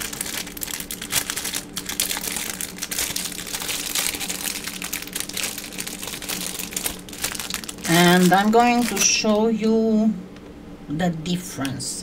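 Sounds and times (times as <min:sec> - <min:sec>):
crinkling and rustling materials: 0:00.0 - 0:09.4
faint low hum: 0:00.0 - 0:12.0.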